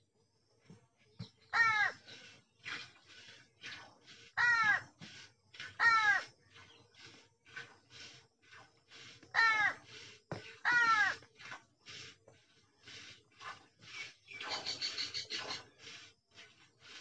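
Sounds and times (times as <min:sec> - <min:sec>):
crows cawing: 0:01.5 - 0:02.0, 0:04.4 - 0:04.9, 0:05.8 - 0:06.3, 0:09.4 - 0:09.8, 0:10.6 - 0:11.2.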